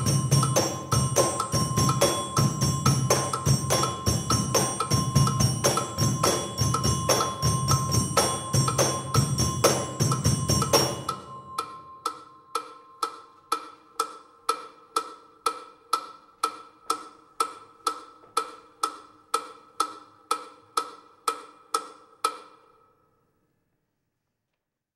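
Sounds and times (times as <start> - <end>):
glockenspiel notes: 0.0 - 14.3
metronome ticking: 0.0 - 22.8.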